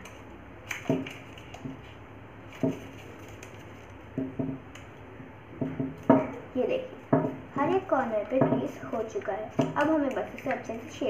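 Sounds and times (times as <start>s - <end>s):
paper crinkling and tapping: 0.0s - 5.0s, 7.1s - 11.0s
low background hum: 0.0s - 11.0s.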